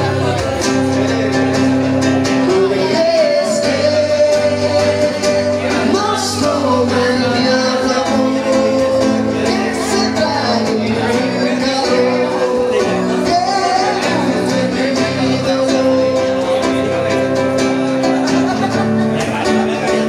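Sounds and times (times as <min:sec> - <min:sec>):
acoustic guitar chords: 0:00.0 - 0:20.0
man singing: 0:00.0 - 0:20.0.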